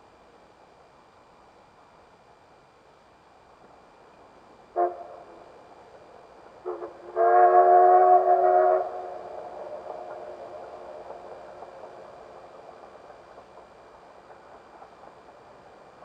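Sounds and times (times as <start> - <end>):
train running noise: 0.0 - 16.0
steam locomotive whistle: 4.8 - 5.2, 6.6 - 10.4.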